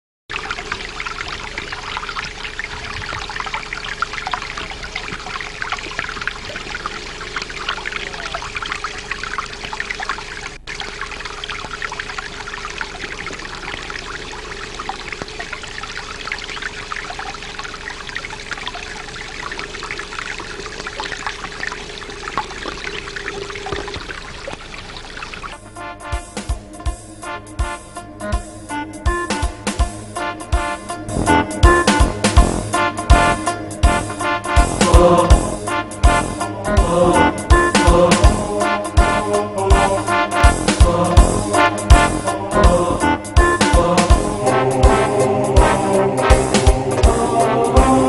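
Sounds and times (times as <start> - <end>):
stream trickling over rocks: 0.3 - 25.8.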